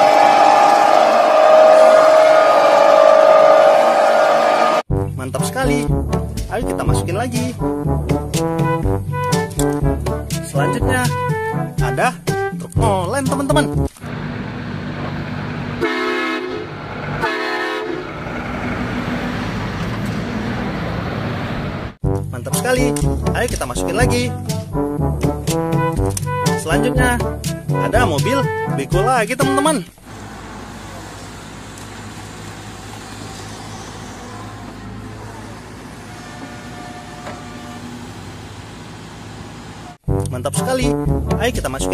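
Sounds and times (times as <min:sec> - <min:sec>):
diesel truck engine running: 0:13.9 - 0:22.0, 0:29.9 - 0:40.0
truck horn blasts: 0:15.8 - 0:18.3, 0:33.7 - 0:38.2.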